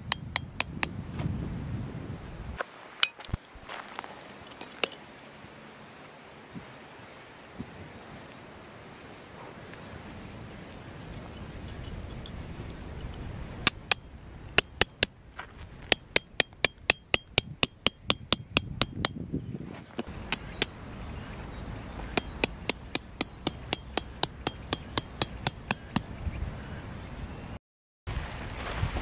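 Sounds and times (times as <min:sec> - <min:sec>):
hammer striking metal tent peg: 0:00.0 - 0:00.9, 0:03.0 - 0:03.4, 0:13.6 - 0:15.2, 0:15.9 - 0:19.2, 0:20.0 - 0:20.8, 0:22.1 - 0:26.1.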